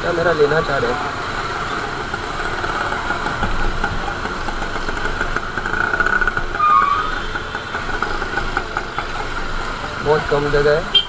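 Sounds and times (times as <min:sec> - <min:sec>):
city traffic: 0:00.0 - 0:11.0
motorcycle engine running: 0:00.0 - 0:11.0.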